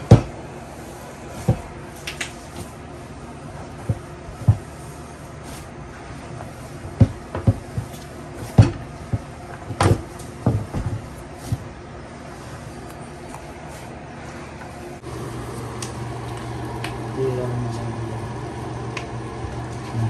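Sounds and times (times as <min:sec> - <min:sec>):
fist thumping dough: 0:00.0 - 0:00.4, 0:06.8 - 0:11.8.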